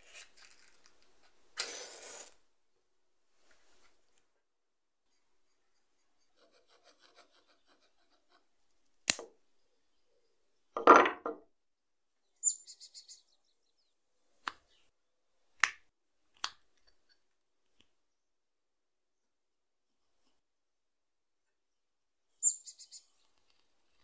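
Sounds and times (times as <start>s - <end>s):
wood knocking on a tabletop: 10.8s - 11.4s.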